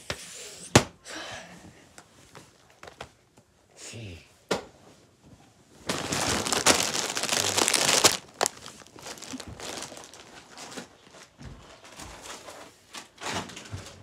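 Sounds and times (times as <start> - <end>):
plastic snack bag crinkling: 5.9 - 11.3.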